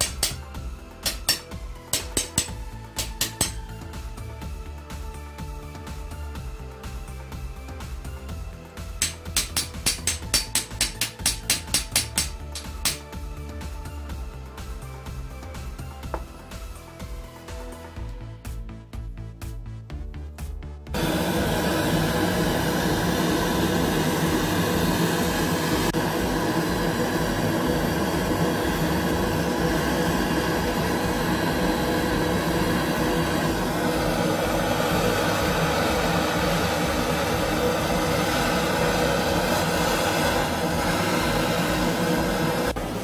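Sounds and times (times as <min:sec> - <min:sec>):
torch flame hissing: 0:21.0 - 0:43.0.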